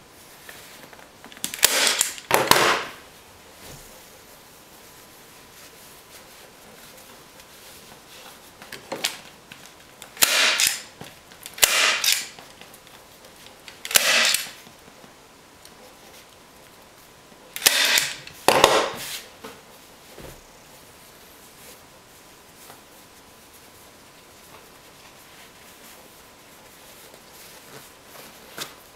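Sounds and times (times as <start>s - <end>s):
staple gun snaps: 10.2s - 10.9s, 13.9s - 14.6s, 17.6s - 18.9s.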